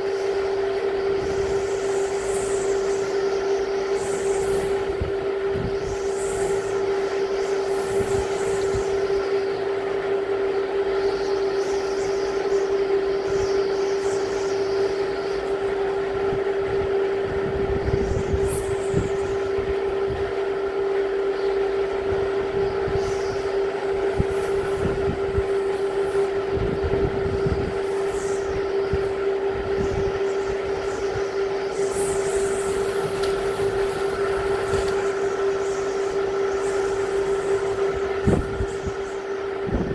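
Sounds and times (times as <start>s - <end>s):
wind buffeting microphone: 3.8s - 10.4s, 13.1s - 39.9s
wind gusting: 21.6s - 39.9s.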